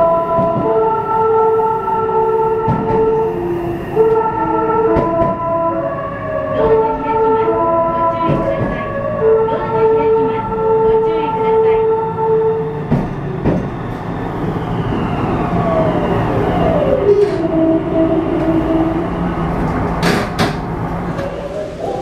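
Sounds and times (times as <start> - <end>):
train running rumble: 0.0 - 1.2, 1.9 - 22.0
train horn tone: 0.0 - 12.8, 17.0 - 19.1.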